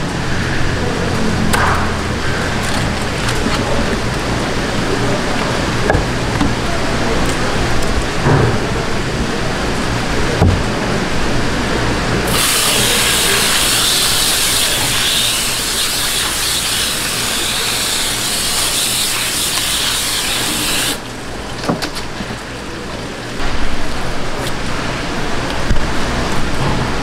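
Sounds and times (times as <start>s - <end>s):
water hose spraying: 12.3s - 21.1s.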